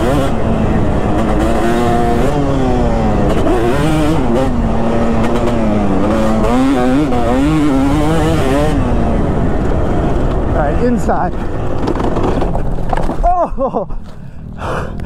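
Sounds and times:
two-stroke motorcycle engine revving: 0:00.0 - 0:10.8.

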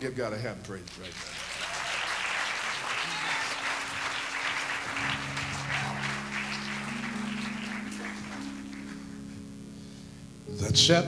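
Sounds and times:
congregation applauding: 0:00.8 - 0:09.5
sustained low instrument chords: 0:04.9 - 0:11.0.

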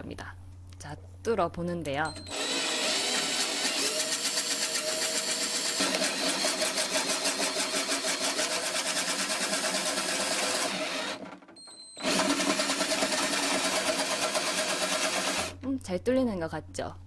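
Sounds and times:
electric drill boring through plastic: 0:02.2 - 0:15.6.

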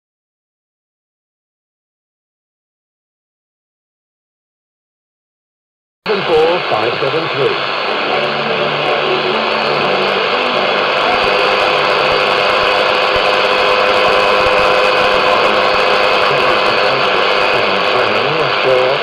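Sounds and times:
radio static hiss: 0:06.1 - 0:19.0.

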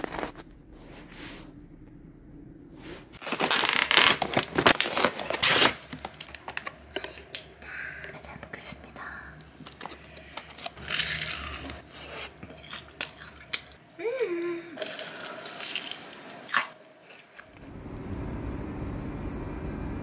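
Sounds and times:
person murmuring exclamation: 0:14.0 - 0:14.8.

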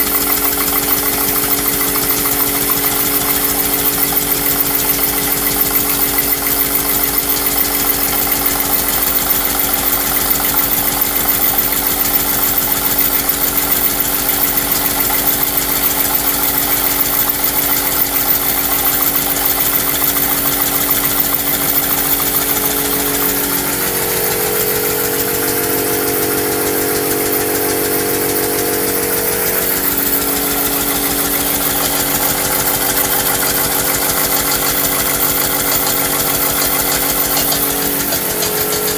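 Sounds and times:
steam engine beating rapidly: 0:00.0 - 0:38.9
steady hum: 0:17.8 - 0:38.9.

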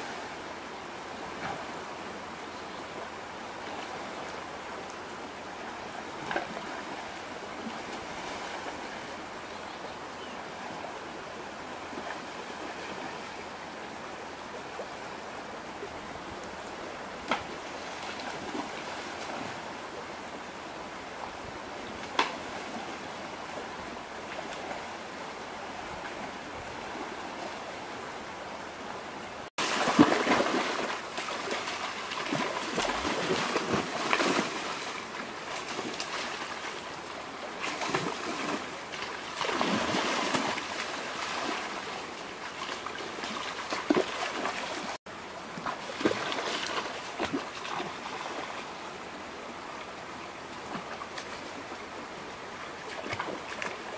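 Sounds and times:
rocky stream flowing: 0:00.0 - 0:53.9
people splashing in water: 0:29.6 - 0:36.6, 0:37.6 - 0:45.0, 0:45.6 - 0:48.4.

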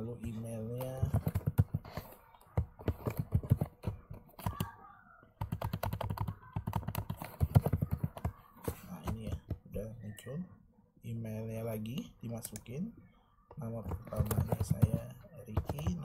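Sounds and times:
typing on computer keyboard: 0:00.2 - 0:04.8, 0:05.4 - 0:09.7, 0:13.6 - 0:16.0.

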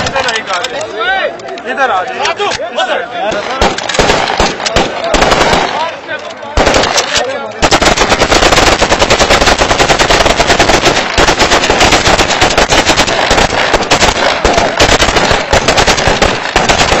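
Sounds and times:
automatic gunfire rattle: 0:03.6 - 0:17.0.

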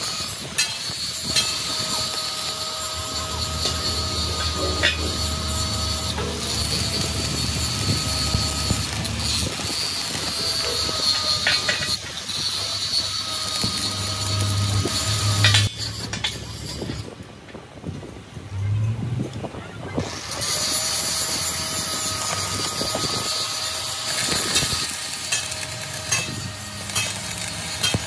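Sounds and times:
machine high whine: 0:00.0 - 0:17.0
noisy rattle: 0:00.0 - 0:17.1
low hum: 0:02.4 - 0:11.5.

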